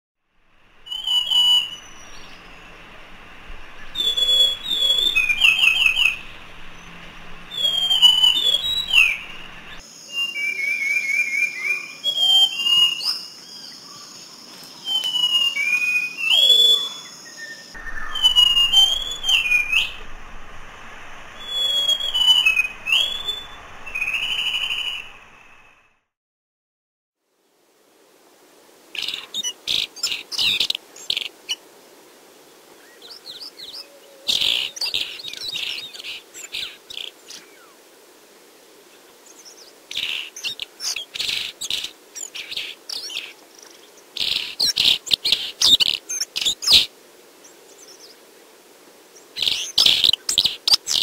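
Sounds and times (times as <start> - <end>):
steady high hiss: 0.3 - 10.4, 17.2 - 25.9
thrush singing whistled phrases: 0.5 - 11.5, 17.7 - 25.9.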